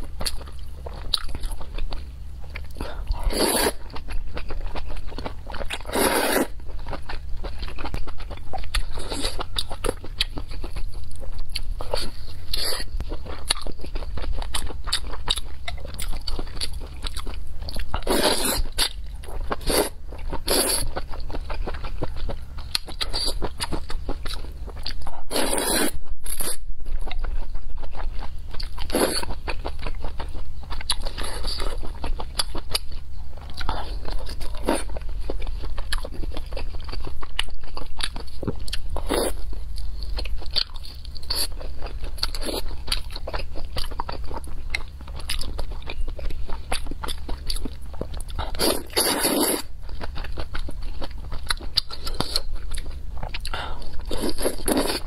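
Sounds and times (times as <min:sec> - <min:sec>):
person chewing noodles: 0:00.0 - 0:55.0
slurping noodles: 0:03.3 - 0:03.8, 0:05.9 - 0:06.5, 0:25.3 - 0:26.0, 0:48.6 - 0:49.7.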